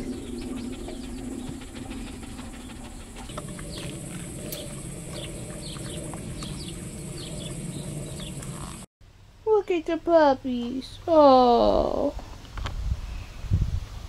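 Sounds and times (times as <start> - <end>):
birds chirping: 0.0 - 8.9
high insect drone: 0.0 - 8.9
low background rumble: 0.0 - 11.9.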